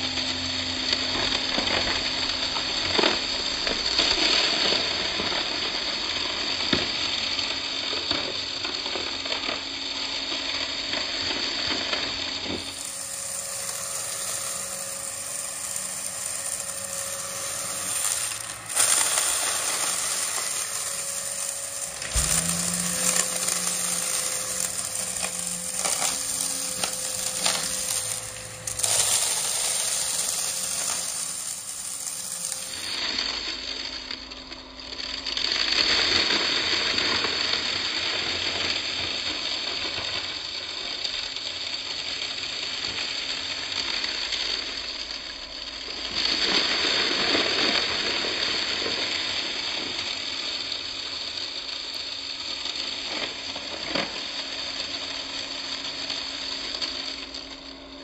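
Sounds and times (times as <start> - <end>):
vacuum cleaner motor hum: 12.4 - 33.2
debris crackling into vacuum: 12.6 - 33.0.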